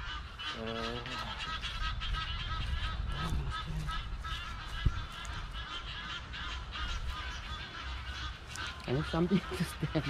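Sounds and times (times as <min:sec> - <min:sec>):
wind rumble on microphone: 0:00.0 - 0:07.6
flock of birds calling: 0:00.0 - 0:10.0.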